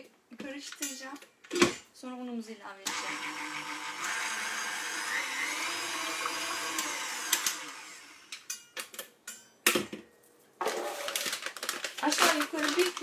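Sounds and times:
stand mixer running: 0:02.9 - 0:08.2.

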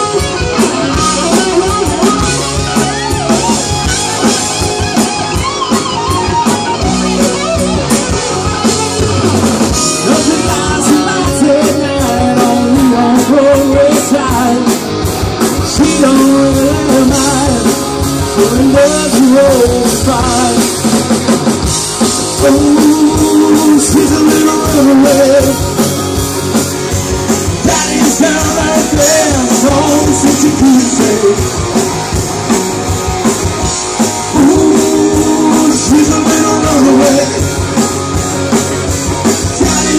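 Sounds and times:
live rock band playing: 0:00.0 - 0:39.9
man singing lead vocals: 0:09.8 - 0:21.3, 0:22.0 - 0:26.1, 0:27.4 - 0:31.9, 0:34.1 - 0:37.9, 0:39.4 - 0:39.9.

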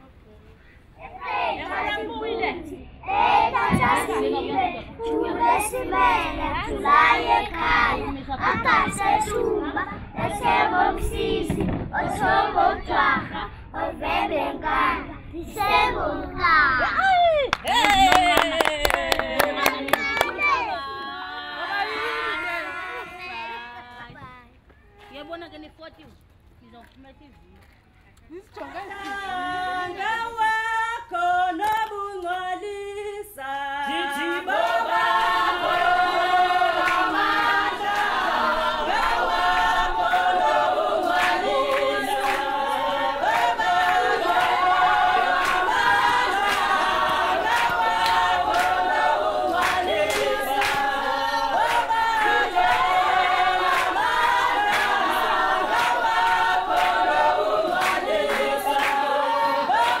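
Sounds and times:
choir singing a cappella: 0:01.1 - 0:16.3, 0:28.8 - 1:00.0.

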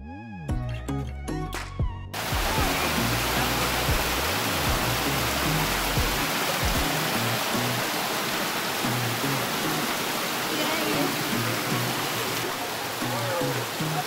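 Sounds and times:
background music with deep bass: 0:00.0 - 0:07.9
waterfall cascading over rocks: 0:02.2 - 0:14.0.

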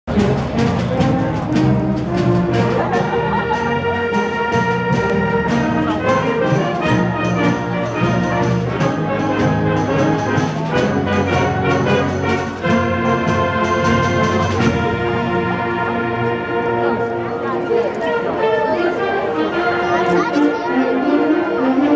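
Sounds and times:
concert band playing: 0:00.0 - 0:21.9
drum strikes: 0:00.1 - 0:15.1.

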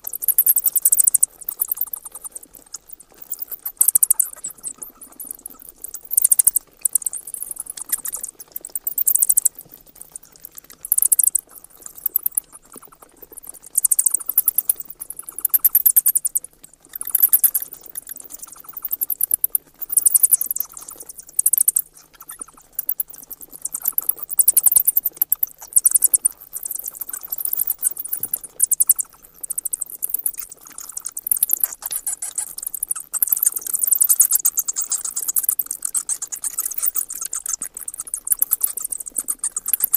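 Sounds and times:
bats chattering: 0:00.0 - 0:39.9.

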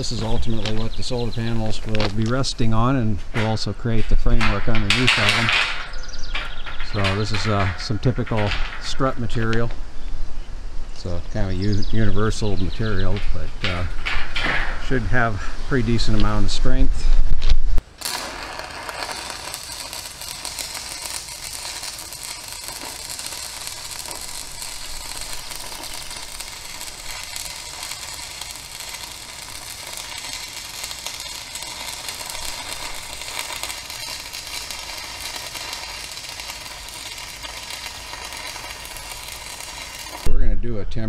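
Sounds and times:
arc welder crackling: 0:00.0 - 0:09.6, 0:17.8 - 0:40.3.

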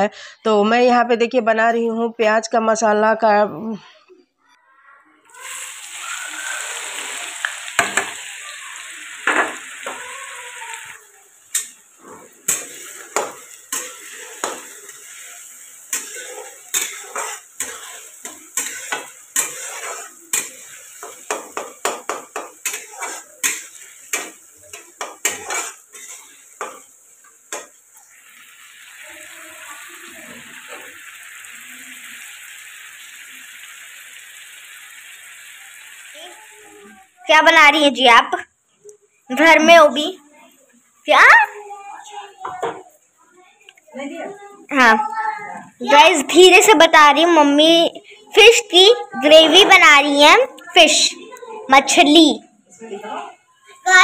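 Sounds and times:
onions sizzling in hot oil: 0:05.3 - 0:38.5, 0:39.1 - 0:45.1, 0:45.8 - 0:52.4
spatula clacking and scraping pan: 0:07.4 - 0:08.2, 0:11.5 - 0:28.0.

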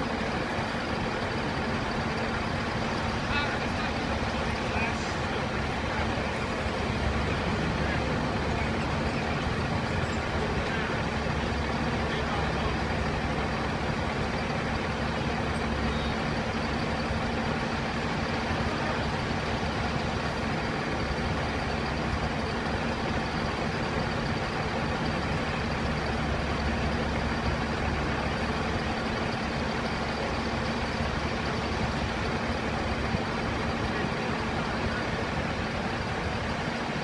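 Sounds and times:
diesel engine idling: 0:00.0 - 0:37.0.

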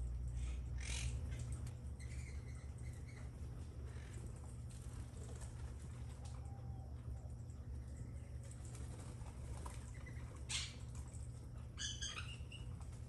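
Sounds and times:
steady low hum: 0:00.0 - 0:13.0
faint bird chirps: 0:00.3 - 0:04.1.

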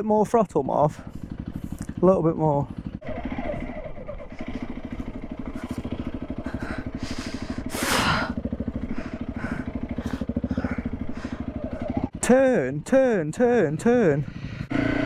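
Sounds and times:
motorcycle engine running: 0:00.0 - 0:15.0
rider breathing: 0:00.9 - 0:02.0, 0:04.3 - 0:12.0, 0:14.2 - 0:14.7.

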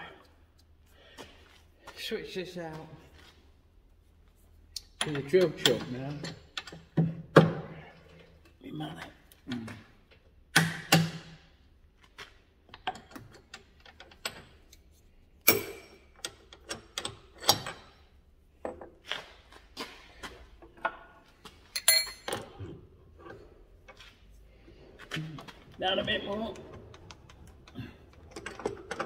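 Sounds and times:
metal clicks and clunks: 0:12.7 - 0:14.8, 0:15.4 - 0:18.0, 0:25.0 - 0:29.0.

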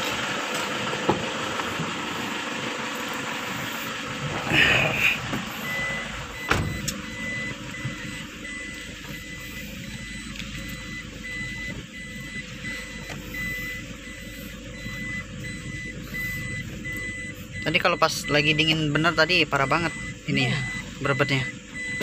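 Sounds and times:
diesel engine hum: 0:00.0 - 0:22.0
reversing warning beeps: 0:04.5 - 0:22.0.

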